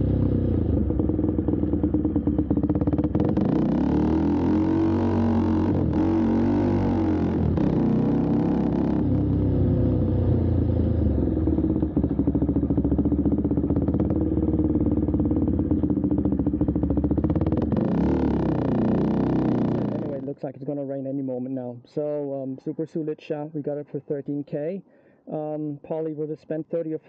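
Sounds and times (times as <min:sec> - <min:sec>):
loud motorcycle engine revving: 0:00.0 - 0:20.3.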